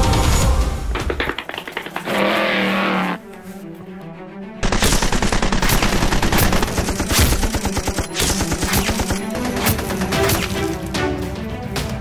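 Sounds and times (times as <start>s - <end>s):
background music: 0.0s - 12.0s
rapid machine gun fire: 4.6s - 10.2s.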